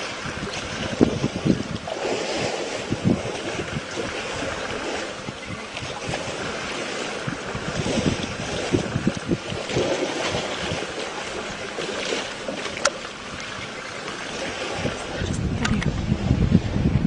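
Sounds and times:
water sloshing and splashing: 0.0 - 16.7
wind rumbling on microphone: 0.0 - 17.0.

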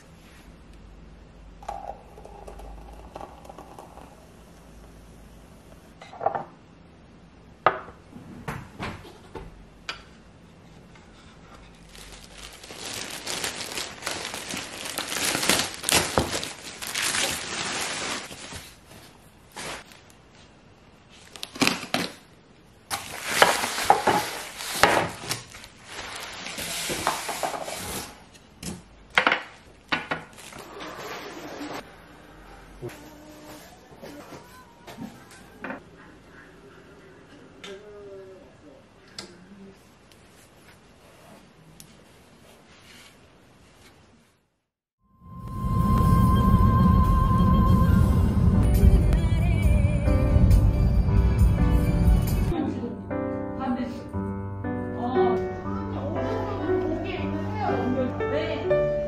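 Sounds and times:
steady noise: 45.2 - 52.6.

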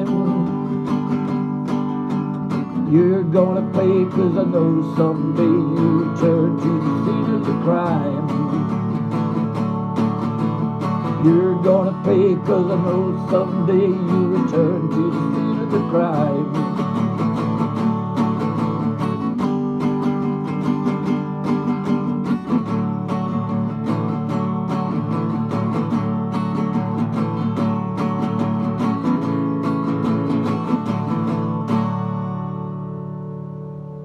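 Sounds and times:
acoustic guitar strumming: 0.0 - 34.0.

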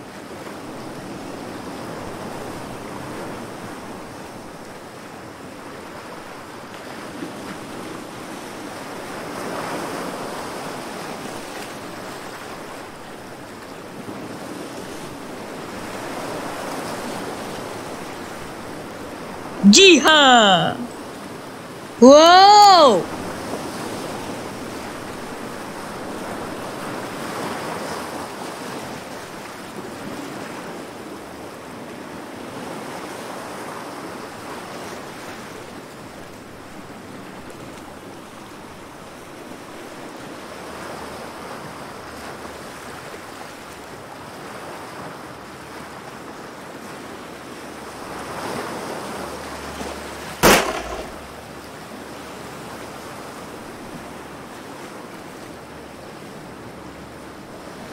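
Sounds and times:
gunshot: 50.4 - 51.3.

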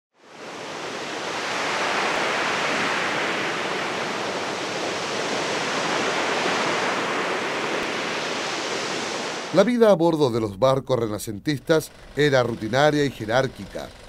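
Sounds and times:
steady rushing noise: 0.3 - 9.8.

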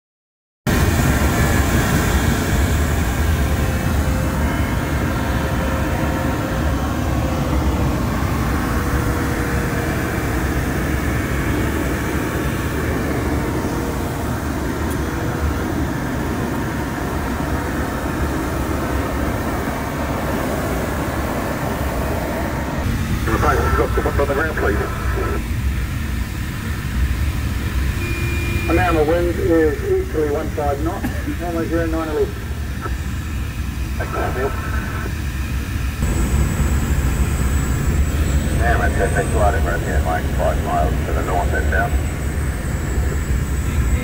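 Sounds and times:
faint steady tone: 28.0 - 29.2
low rumble: 32.4 - 44.0.

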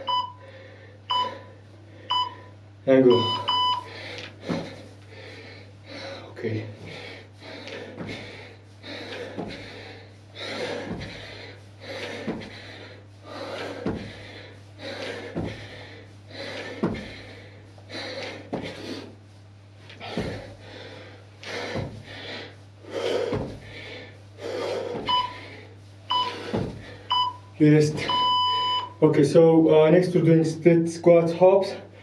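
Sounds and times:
workout timer beeps: 0.0 - 0.4, 1.1 - 1.5, 2.1 - 2.5, 3.1 - 4.0, 25.0 - 25.5, 26.1 - 29.0
heavy breathing: 0.0 - 28.9
landing thuds: 4.4 - 4.9, 7.8 - 17.3, 18.2 - 18.9, 20.0 - 20.6, 21.5 - 22.3, 23.2 - 23.8, 26.1 - 27.3.

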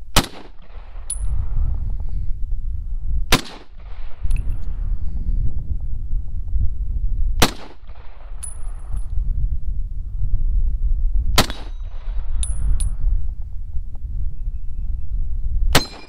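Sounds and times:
wind buffeting microphone: 0.0 - 16.0
rifle shots: 0.1 - 1.2, 3.3 - 4.3, 7.4 - 8.6, 11.4 - 12.2, 15.7 - 16.0
distant steel target ringing: 15.8 - 16.0.

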